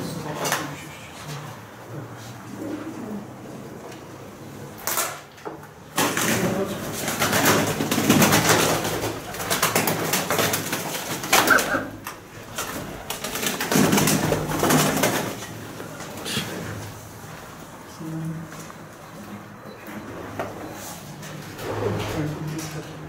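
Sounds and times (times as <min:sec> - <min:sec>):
pigeons cooing: 0:02.4 - 0:03.8, 0:11.3 - 0:12.1
loud rustling and scraping: 0:06.0 - 0:23.0.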